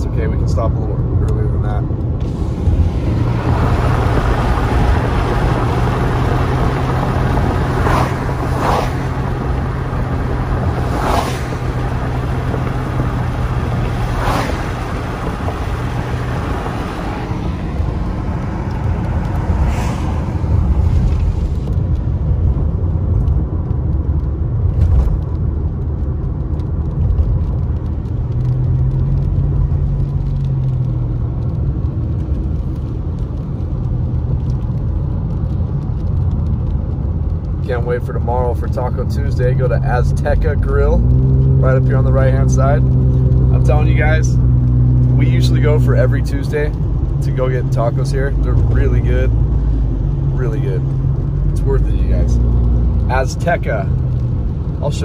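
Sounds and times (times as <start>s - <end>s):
car road rumble: 0.0s - 55.0s
tyre hiss on wet road: 2.2s - 21.7s.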